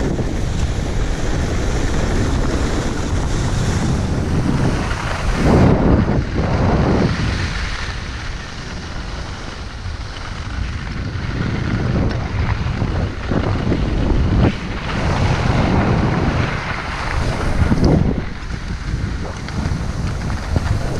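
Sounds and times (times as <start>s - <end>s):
skis sliding on snow: 0.0s - 20.9s
wind buffeting microphone: 0.0s - 20.9s.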